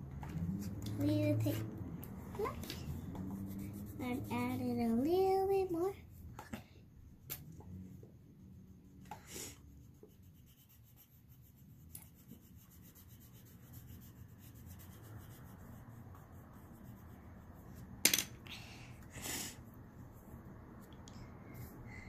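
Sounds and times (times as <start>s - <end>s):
crayon scratching on paper: 0.6s - 6.3s, 8.6s - 17.8s.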